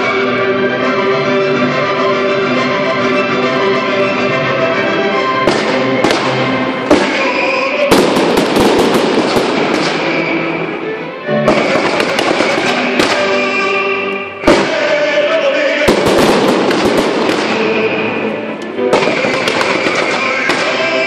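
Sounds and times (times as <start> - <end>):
music playing: 0.0 - 21.0
fireworks bangs: 5.4 - 10.6, 11.5 - 13.7, 14.4 - 21.0
fireworks crackling: 5.5 - 10.8, 11.5 - 21.0.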